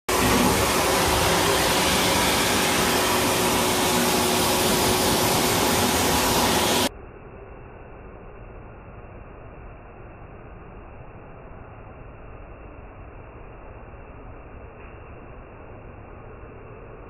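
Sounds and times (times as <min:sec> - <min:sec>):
pet dryer blowing air: 0:00.1 - 0:06.9.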